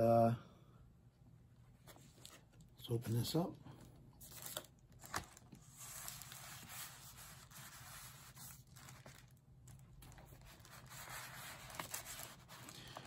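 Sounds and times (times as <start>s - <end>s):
paper sleeve rustling and crinkling: 4.2s - 13.0s.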